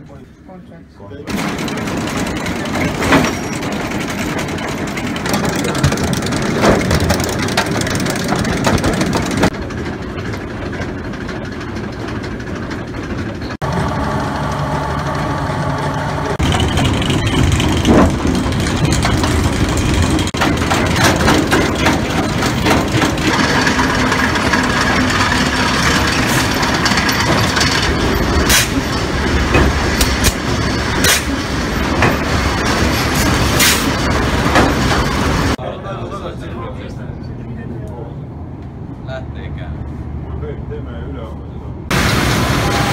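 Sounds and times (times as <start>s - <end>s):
industrial machinery running: 1.2s - 36.6s, 41.7s - 42.9s
metallic knocks and clanks: 1.3s - 13.6s, 16.4s - 35.6s.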